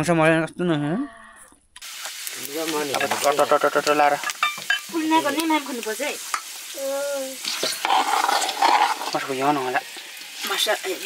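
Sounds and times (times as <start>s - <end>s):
spice paste sizzling in oil: 1.8s - 11.0s
steel ladle stirring in pan: 7.4s - 10.6s.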